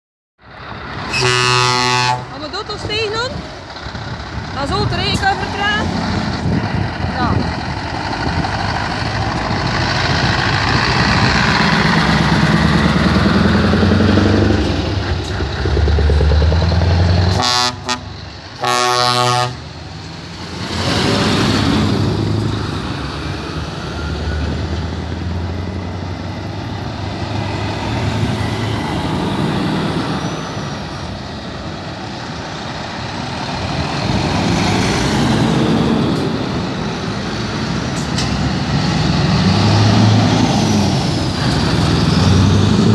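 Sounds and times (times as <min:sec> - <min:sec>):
truck diesel engines driving past: 0:00.4 - 0:42.9
truck air horn blasts: 0:01.1 - 0:02.4, 0:17.3 - 0:19.7.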